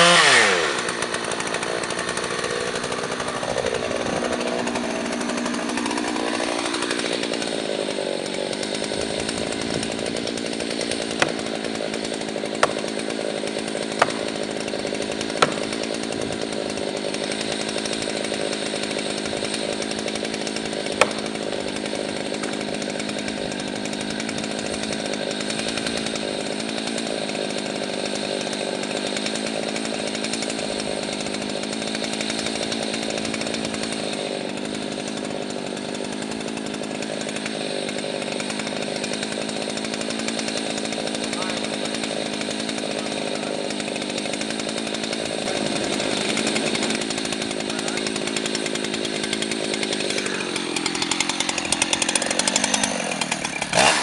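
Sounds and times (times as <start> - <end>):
chainsaw idling: 0.0 - 54.0
sharp knocks: 13.9 - 14.3, 15.3 - 15.8.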